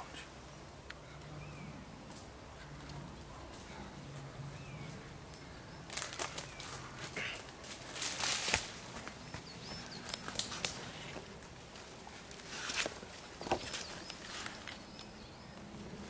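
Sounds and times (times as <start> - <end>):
running footsteps through undergrowth: 5.9 - 14.8.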